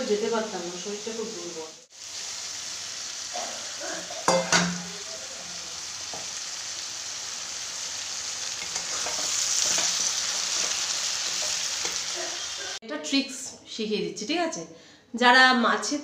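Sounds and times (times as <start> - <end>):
vegetables frying and sizzling: 0.0 - 12.8
metal spatula stirring: 8.6 - 12.3.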